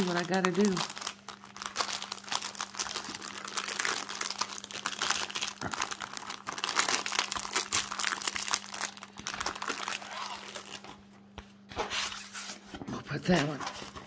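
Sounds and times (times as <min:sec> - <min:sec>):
plastic zip bags crinkling: 0:00.0 - 0:11.0.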